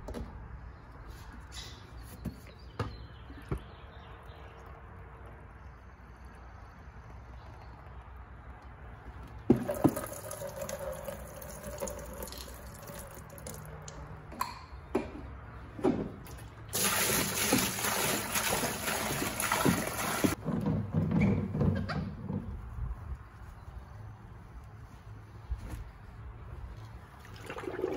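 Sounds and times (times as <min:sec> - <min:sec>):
water pouring into plastic bucket: 0:09.5 - 0:13.7, 0:16.7 - 0:20.4, 0:27.2 - 0:27.9.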